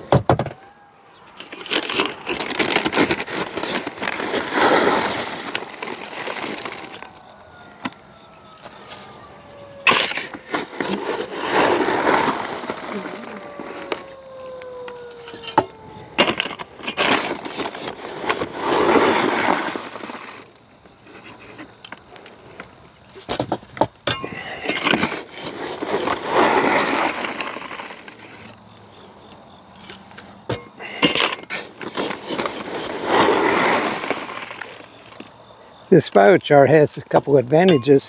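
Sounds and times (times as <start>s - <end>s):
metal scoop crunching charcoal: 1.2s - 7.2s, 9.8s - 14.1s, 15.1s - 21.6s, 23.3s - 28.5s, 29.8s - 35.3s
charcoal pouring into metal tumbler: 1.8s - 7.1s, 10.8s - 13.9s.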